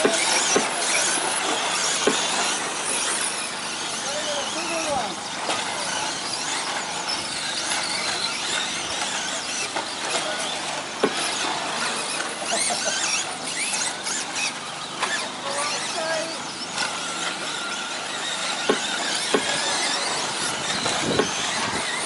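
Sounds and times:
electric motors whining: 0.0s - 22.0s.

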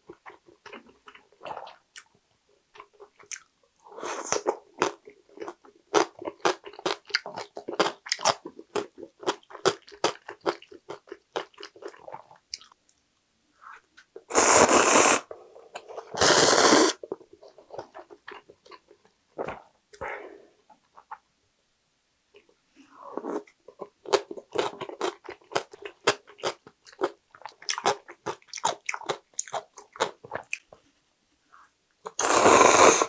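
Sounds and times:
noodle slurping: 14.3s - 15.2s, 16.0s - 17.0s, 32.1s - 33.0s.

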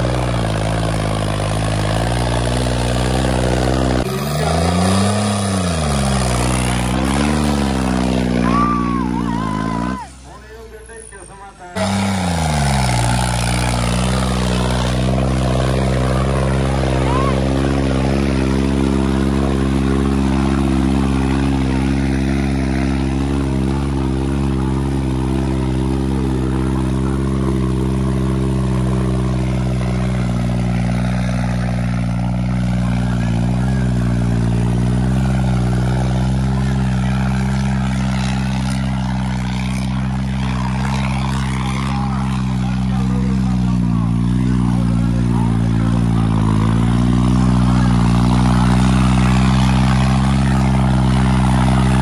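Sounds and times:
diesel tractor engine at full throttle: 0.0s - 52.0s.

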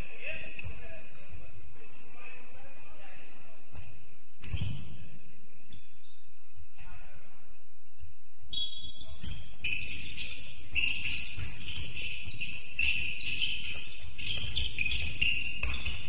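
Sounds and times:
sneaker squeaks on floor: 3.1s - 5.1s, 5.7s - 7.2s, 8.5s - 16.0s
footsteps and ball thuds: 3.7s - 5.0s, 9.1s - 16.0s.

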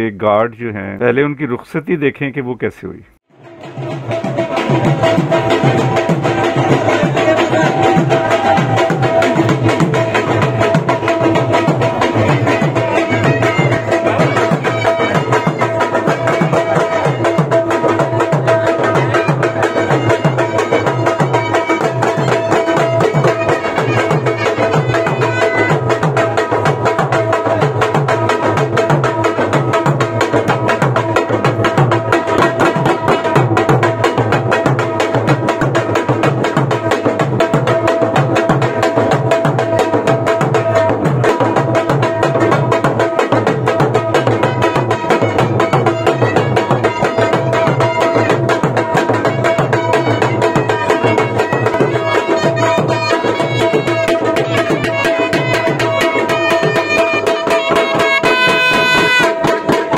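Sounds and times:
dhol drum beaten with sticks: 3.3s - 59.9s
shehnai melody: 3.4s - 28.5s, 43.2s - 59.9s.

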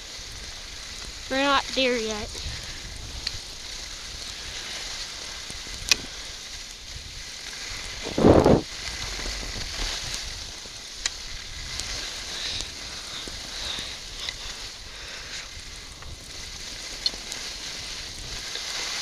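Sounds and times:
skis scraping over snow: 0.0s - 19.0s
loud rush of noise: 7.9s - 9.6s.

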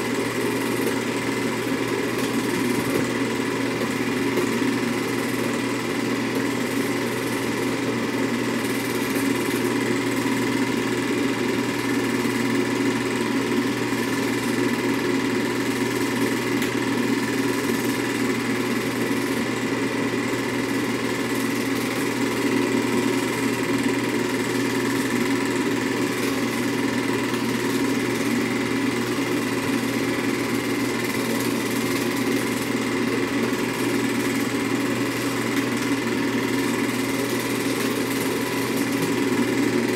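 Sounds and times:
film projector whirring: 0.0s - 39.9s.

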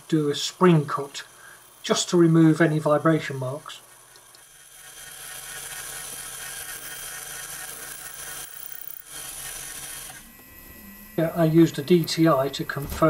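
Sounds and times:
metal lathe cutting with high hiss: 4.4s - 13.0s.

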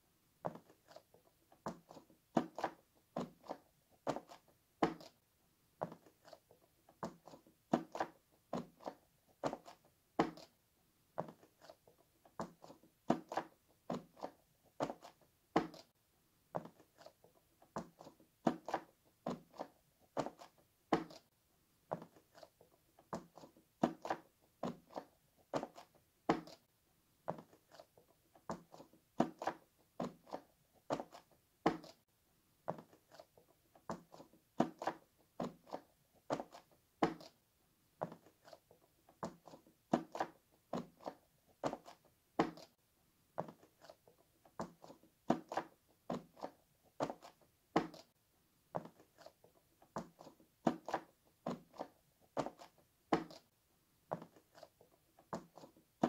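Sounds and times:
pop-it toy popping clicks: 33.9s - 37.4s, 43.4s - 48.1s, 48.8s - 53.5s.

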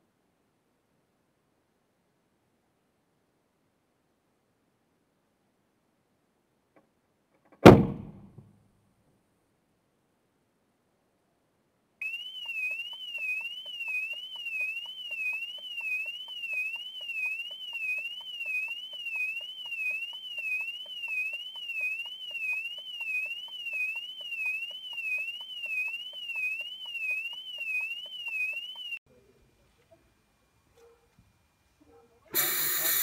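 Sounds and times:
car alarm siren wailing: 12.0s - 29.0s.

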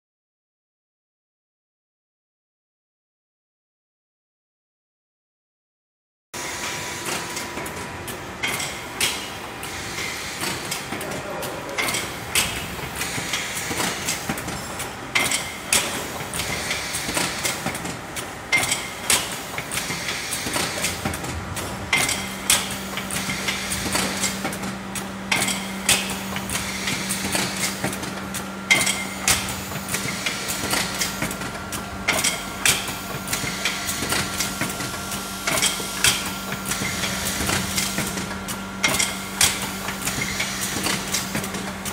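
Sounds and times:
capsule filling machine clatter: 6.7s - 41.9s
steady low hum: 7.8s - 41.9s
machine knock and clicks: 10.4s - 41.9s.

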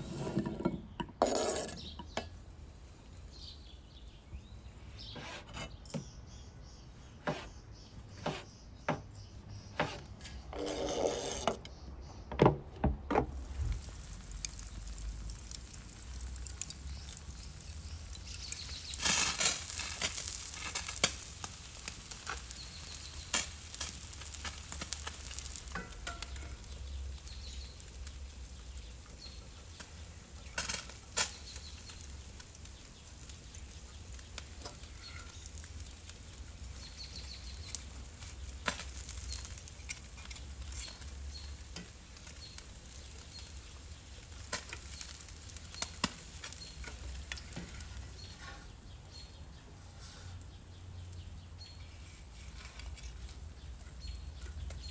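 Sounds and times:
steam hissing: 13.3s - 26.4s
fish sizzling and crackling: 13.3s - 49.5s, 51.2s - 54.9s.

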